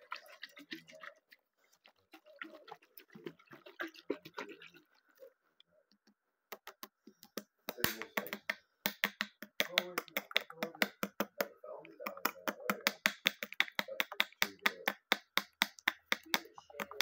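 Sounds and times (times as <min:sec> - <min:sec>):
fingers tapping plastic bottle: 0:06.0 - 0:17.0.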